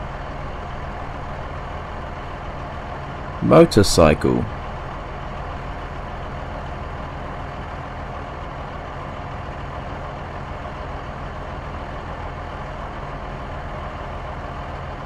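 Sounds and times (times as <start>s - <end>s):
vehicle engine running steadily: 4.8s - 15.0s.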